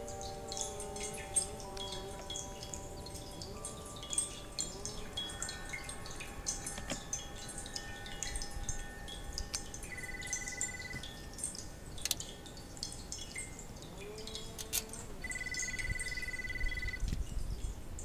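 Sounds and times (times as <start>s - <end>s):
bird trills: 0.0s - 13.6s, 14.2s - 17.1s
small birds chirping: 0.0s - 18.0s
clicks of metal fittings: 14.6s - 15.0s.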